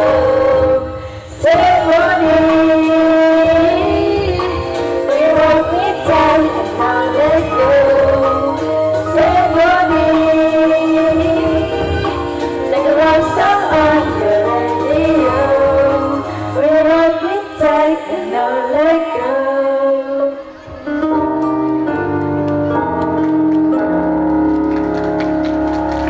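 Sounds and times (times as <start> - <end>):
girls' choir singing: 0.0 - 20.8.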